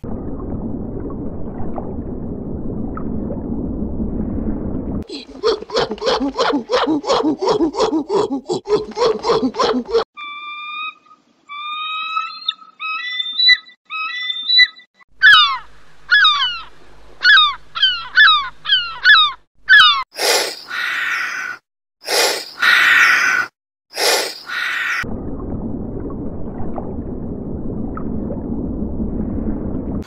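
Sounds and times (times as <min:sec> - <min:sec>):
herring gulls calling: 0:09.0 - 0:20.0
loud harsh hisses: 0:24.0 - 0:24.6.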